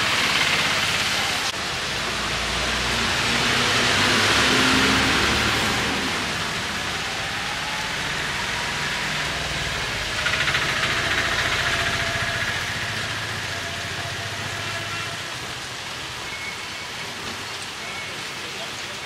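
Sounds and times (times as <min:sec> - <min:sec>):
heavy rain falling: 0:00.0 - 0:19.0
vehicle engine running: 0:09.8 - 0:13.6.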